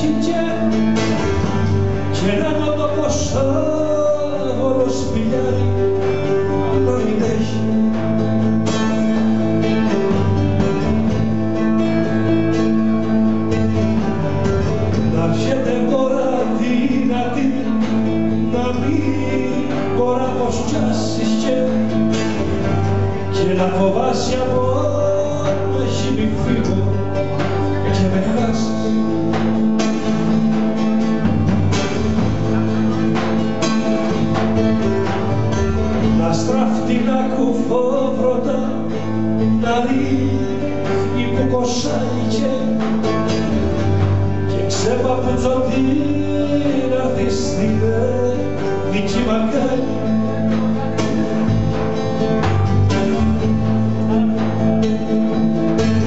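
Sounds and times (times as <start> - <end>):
man singing: 0.0 - 8.2, 15.0 - 29.5, 36.0 - 43.6, 44.3 - 51.5
strummed acoustic guitar: 0.0 - 56.0.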